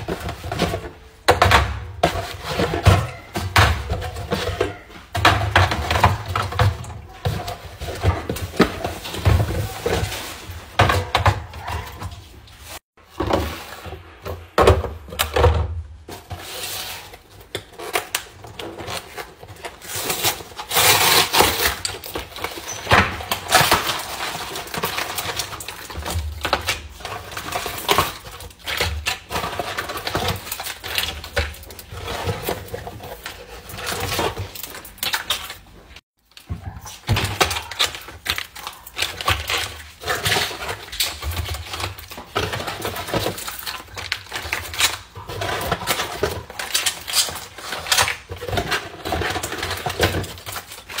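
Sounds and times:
foil pouches crinkling: 16.1 - 51.0.

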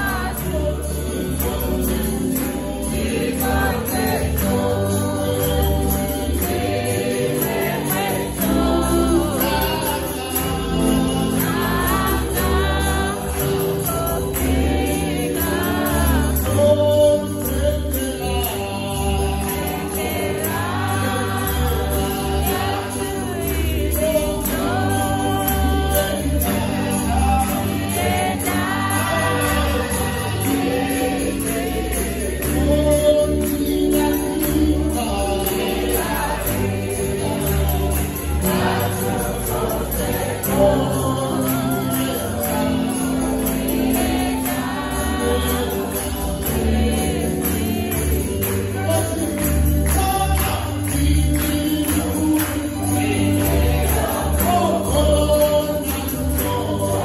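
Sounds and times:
congregation singing a hymn: 0.0 - 57.0
hand clapping: 0.0 - 57.0.

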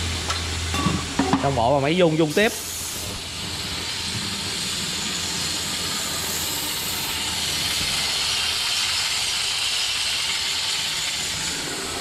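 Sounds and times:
polishing machine hissing: 2.2 - 8.7.

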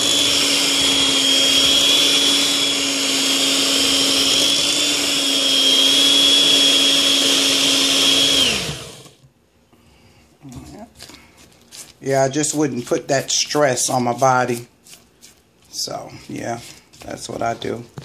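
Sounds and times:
electric hand mixer whining: 0.0 - 9.3.

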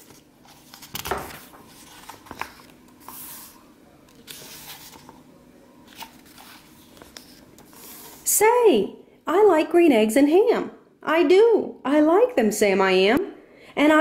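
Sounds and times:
book pages turning: 0.0 - 5.2, 5.8 - 8.2.

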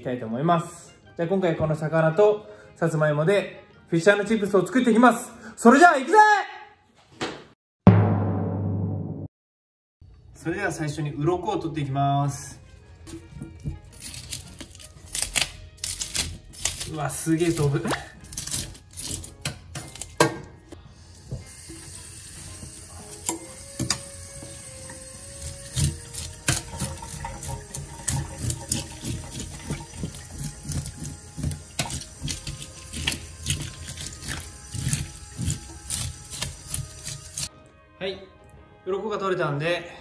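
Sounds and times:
tap water running into sink: 21.1 - 37.5
fish scaler scraping scales: 24.9 - 37.5.

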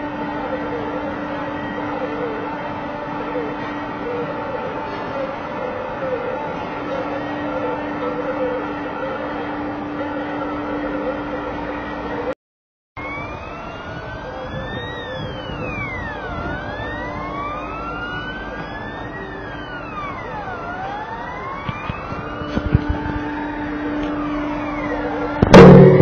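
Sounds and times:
fire engine siren wailing: 0.0 - 12.4, 13.0 - 26.0
steady low hum: 22.2 - 26.0.

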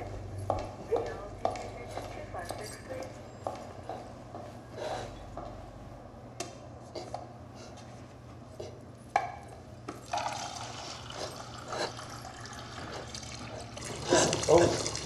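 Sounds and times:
coffee pouring into cup: 10.0 - 15.0.

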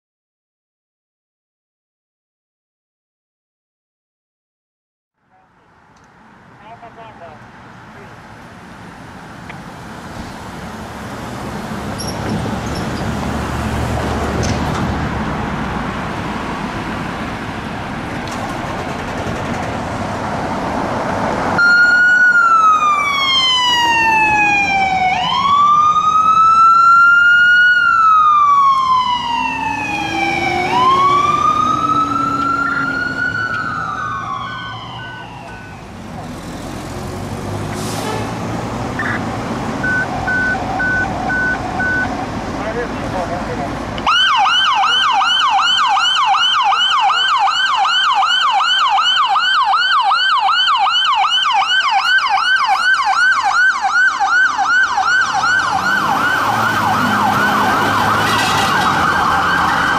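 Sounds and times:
vehicle engine and road noise: 5.2 - 59.9
emergency siren wailing: 21.0 - 36.3, 37.2 - 42.4, 44.0 - 59.9.

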